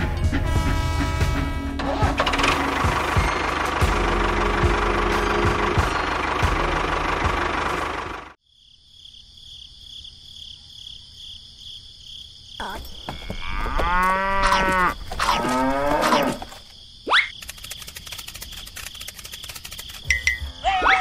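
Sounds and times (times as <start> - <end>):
high insect chirring: 8.5 - 20.9
cow mooing: 13.2 - 16.5
small motor running: 17.4 - 20.1.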